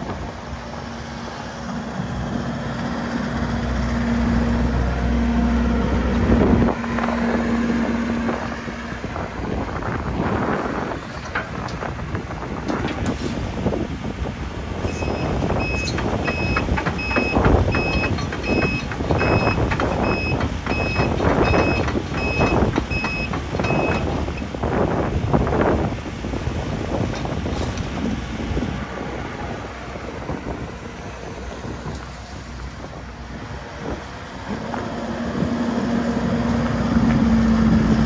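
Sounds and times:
excavator diesel engine humming: 0.0 - 38.0
travel alarm beeping: 14.9 - 24.1.

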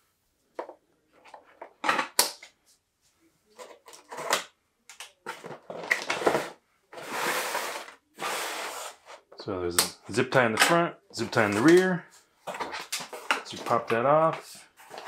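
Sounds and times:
cardboard scraping: 5.4 - 9.2.

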